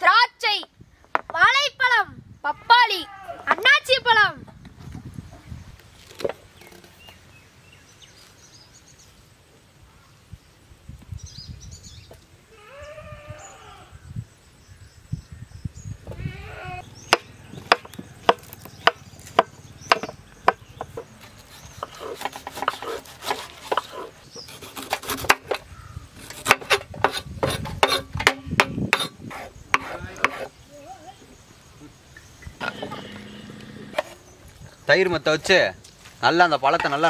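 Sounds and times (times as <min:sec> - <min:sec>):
animal bleating: 0:12.5 - 0:13.9, 0:16.1 - 0:16.8, 0:32.6 - 0:34.0
knife chopping on wooden board: 0:17.1 - 0:21.1, 0:21.8 - 0:24.1, 0:26.4 - 0:30.5.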